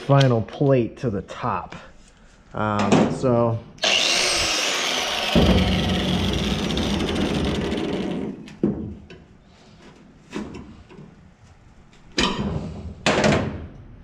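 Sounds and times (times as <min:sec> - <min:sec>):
angle grinder whirring: 0:03.8 - 0:08.4.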